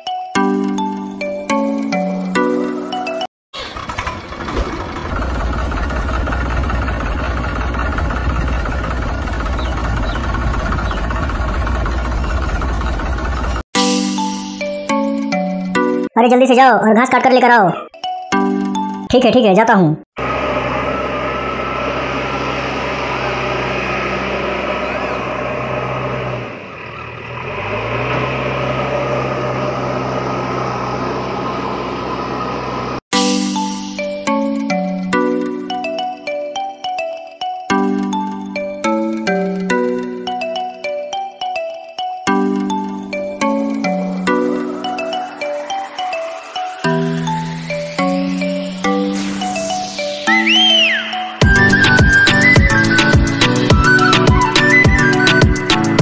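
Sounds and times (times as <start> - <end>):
tractor engine running: 3.6 - 13.6, 20.2 - 33.0, 42.3 - 50.0, 51.4 - 56.0.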